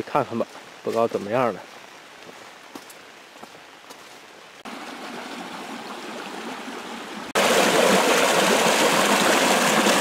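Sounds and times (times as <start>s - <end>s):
floodwater rushing over rocks: 4.6s - 10.0s.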